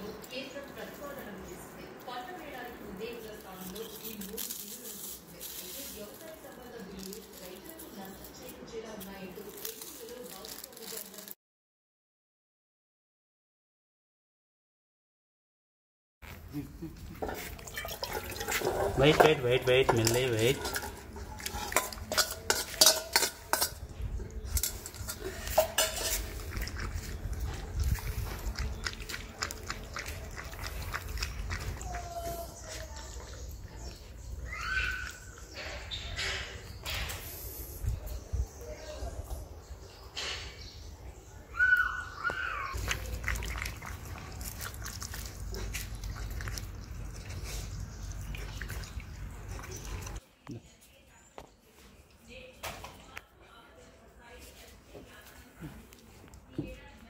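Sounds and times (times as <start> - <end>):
spoon scraping steel bowls: 17.2 - 27.3
dog eating from steel bowl: 17.2 - 34.2, 42.7 - 50.2
puppy chewing food: 26.1 - 34.5, 42.7 - 50.2.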